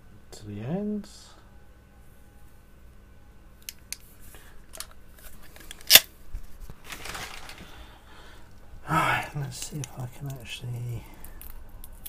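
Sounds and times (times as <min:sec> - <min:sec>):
rustle of parts handled: 0:03.9 - 0:07.9.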